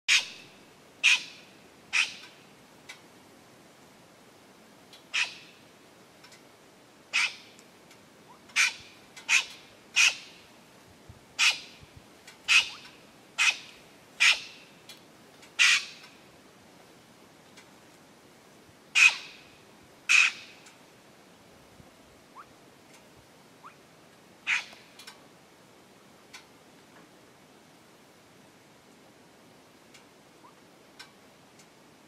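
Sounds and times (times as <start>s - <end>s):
bird squawking calls: 0.1s - 2.4s, 5.1s - 5.6s, 7.1s - 7.5s, 8.3s - 10.4s, 11.4s - 11.8s, 12.5s - 14.7s, 15.6s - 16.1s, 19.0s - 19.5s, 20.1s - 20.6s, 24.5s - 24.8s.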